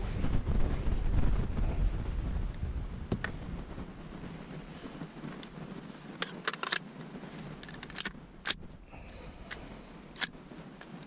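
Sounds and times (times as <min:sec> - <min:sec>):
rifle clicking and clacking: 0:06.2 - 0:08.8, 0:09.5 - 0:11.0.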